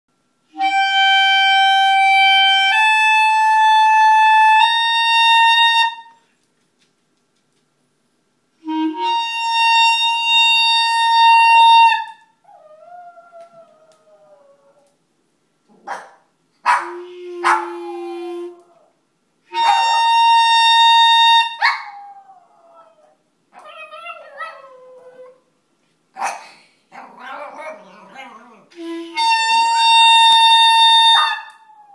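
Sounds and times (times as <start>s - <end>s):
clarinet holding high note: 0.5s - 6.2s, 8.6s - 12.2s, 16.8s - 18.9s, 19.5s - 21.6s, 28.7s - 31.5s
dog yipping: 15.8s - 17.7s, 19.6s - 20.1s, 21.6s - 22.0s, 26.2s - 26.5s, 31.2s - 31.6s.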